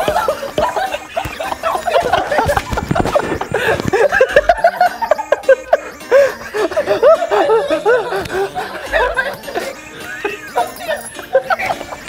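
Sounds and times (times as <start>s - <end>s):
men laughing: 0.0s - 12.0s.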